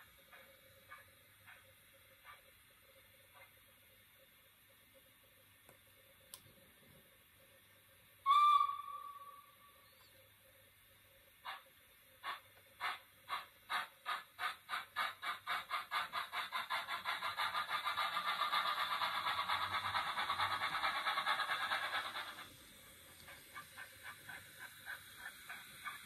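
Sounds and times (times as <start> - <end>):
steam locomotive chuffs: 0.0 - 2.6, 11.4 - 26.0.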